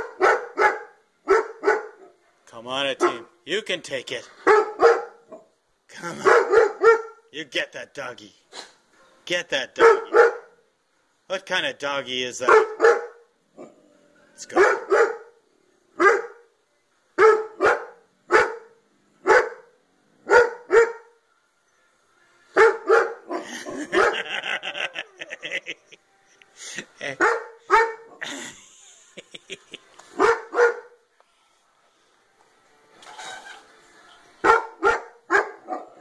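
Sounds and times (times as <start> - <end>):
puppy barking: 0.0 - 2.2, 3.0 - 3.3, 4.4 - 5.5, 6.2 - 7.2, 9.8 - 10.6, 12.4 - 13.8, 14.5 - 15.4, 16.0 - 16.5, 17.2 - 21.2, 22.6 - 25.6, 27.2 - 28.2, 30.2 - 31.0, 34.4 - 36.0.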